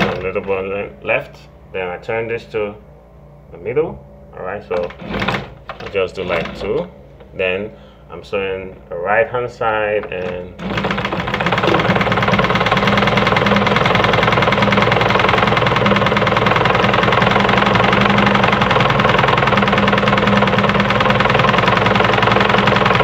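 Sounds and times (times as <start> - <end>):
sewing machine running: 4.8 - 6.9, 10.2 - 23.0.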